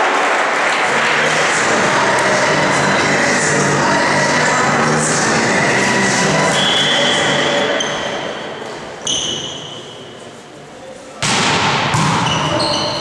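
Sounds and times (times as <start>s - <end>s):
players' voices: 0.2s - 9.0s
volleyball being hit: 11.2s - 12.6s.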